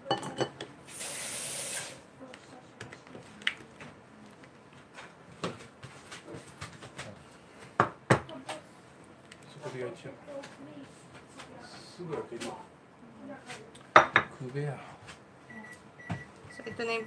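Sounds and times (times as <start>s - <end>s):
steady hiss: 0.8s - 2.1s.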